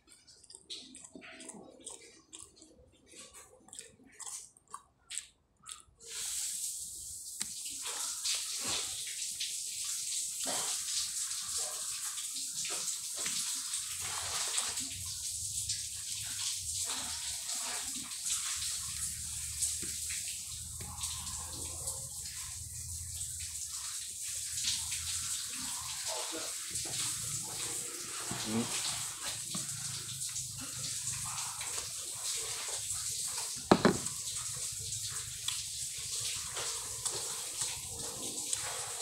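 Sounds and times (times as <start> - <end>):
fingers working in food: 0.0 - 6.2, 33.6 - 34.2
lip smacks: 0.0 - 6.2
wet chewing: 0.0 - 6.5, 24.7 - 39.0.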